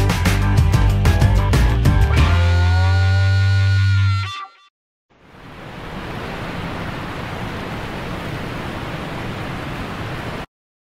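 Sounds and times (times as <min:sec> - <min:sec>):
creek water running over rocks: 0:05.2 - 0:10.5.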